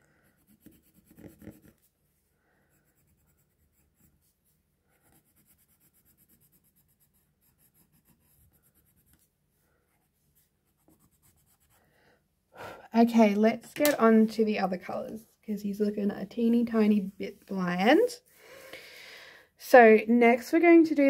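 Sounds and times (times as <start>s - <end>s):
pencil scratching on paper: 0.0s - 2.0s, 2.6s - 12.0s.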